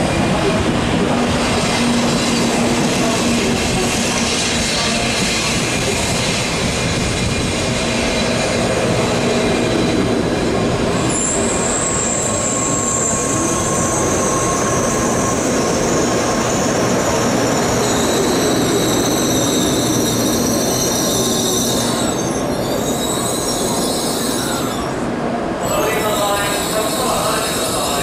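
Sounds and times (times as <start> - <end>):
train rolling slowly: 0.0 - 28.0
high brake squeal: 10.9 - 25.0, 25.6 - 28.0
lower brake squeal: 10.9 - 25.0, 25.6 - 28.0.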